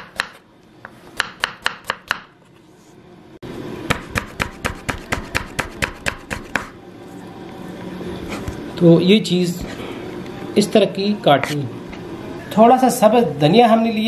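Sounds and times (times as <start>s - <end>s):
knife chopping on wooden board: 0.0s - 2.3s, 3.9s - 6.7s.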